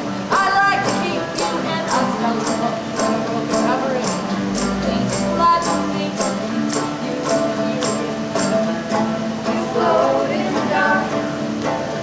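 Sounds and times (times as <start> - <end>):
women singing: 0.0 - 8.7, 9.4 - 12.0
acoustic guitar: 0.0 - 12.0
hand percussion beat: 0.3 - 9.2.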